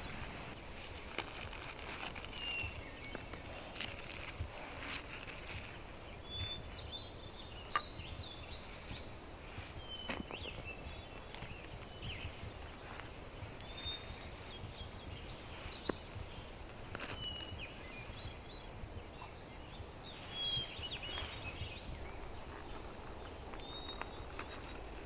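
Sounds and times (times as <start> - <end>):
handling rustle: 0.0 - 6.9, 8.5 - 18.4, 20.0 - 25.0
small birds chirping: 0.0 - 25.0.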